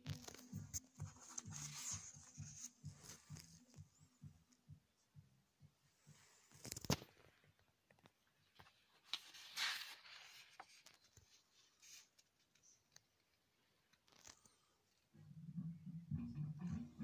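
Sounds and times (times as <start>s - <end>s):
paper rustling: 0.2s - 3.6s, 8.4s - 14.7s.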